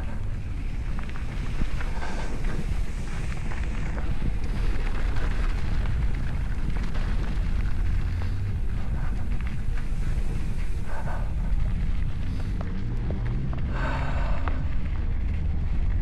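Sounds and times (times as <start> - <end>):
wind rumbling on microphone: 0.0 - 16.0.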